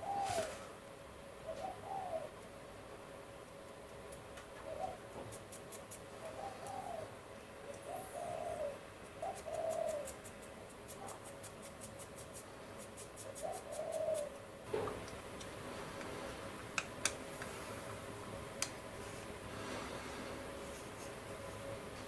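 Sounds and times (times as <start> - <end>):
bird calling softly: 1.4 - 2.4, 4.6 - 5.2, 6.2 - 10.2, 13.4 - 14.4.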